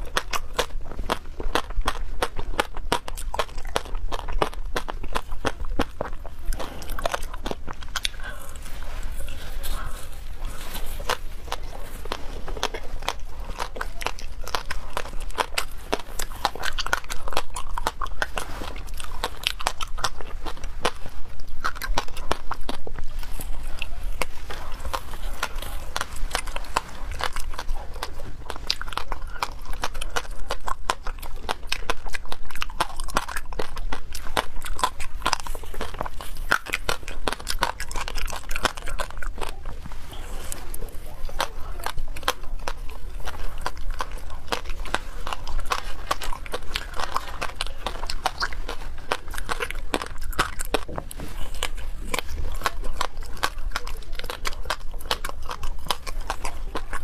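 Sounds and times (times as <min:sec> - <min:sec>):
ice crunching while chewed: 0:00.0 - 0:57.0.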